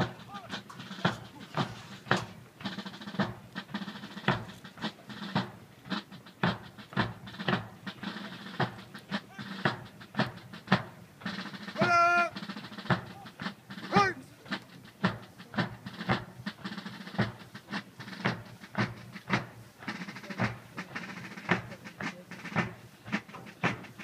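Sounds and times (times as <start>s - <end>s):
drum marching cadence: 0.0s - 24.0s
shouted drill command: 11.8s - 12.4s, 13.1s - 14.3s.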